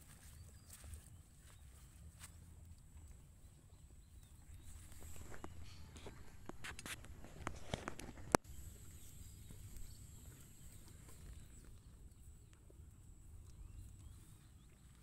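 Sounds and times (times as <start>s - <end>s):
low wind rumble on microphone: 2.4s - 15.0s
steady high-pitched hum: 4.4s - 14.6s
faint chirps: 7.5s - 15.0s.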